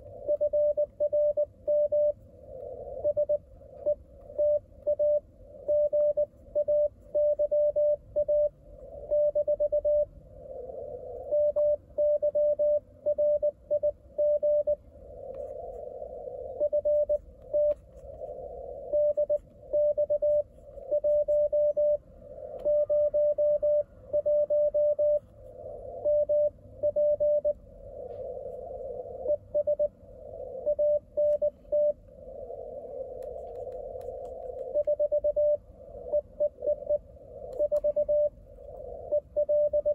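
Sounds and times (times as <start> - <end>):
morse code beeps: 0.0 - 2.2, 3.0 - 10.1, 11.2 - 14.8, 16.5 - 17.8, 18.8 - 22.0, 22.6 - 25.3, 26.0 - 27.6, 29.1 - 29.9, 30.6 - 32.0, 34.6 - 39.9
radio band noise hiss: 14.0 - 39.9.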